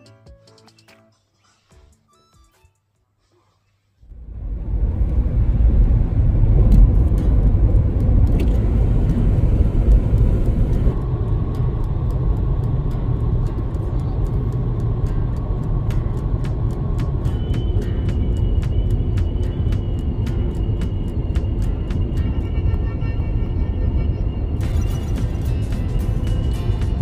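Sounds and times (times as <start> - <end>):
faint steady whine: 4.0 - 27.0
road and wind noise in car: 4.0 - 27.0.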